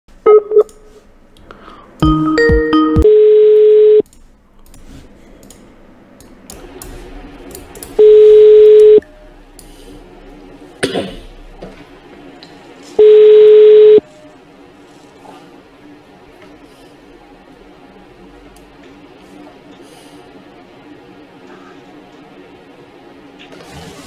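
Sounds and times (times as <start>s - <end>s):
telephone ringback tone: 2.0s - 4.0s, 8.0s - 9.0s, 13.0s - 14.1s.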